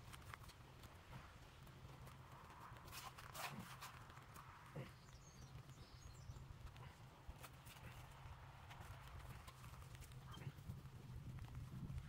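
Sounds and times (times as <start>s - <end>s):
hand scratching damp soil: 2.3s - 4.6s.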